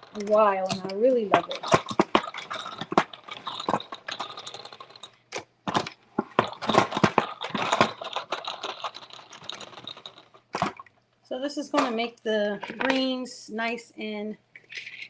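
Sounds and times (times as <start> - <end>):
plastic clicking and rattling: 0.0 - 11.0.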